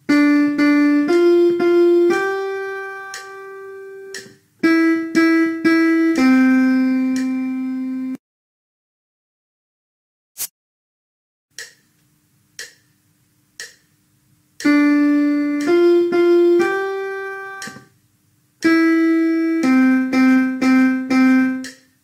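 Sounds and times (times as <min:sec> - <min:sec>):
piano-toned keyboard melody: 0:00.0 - 0:08.2, 0:14.6 - 0:17.9, 0:18.6 - 0:21.8
metronome clicks: 0:00.1 - 0:07.7, 0:11.5 - 0:14.0, 0:14.6 - 0:17.9, 0:18.6 - 0:22.0.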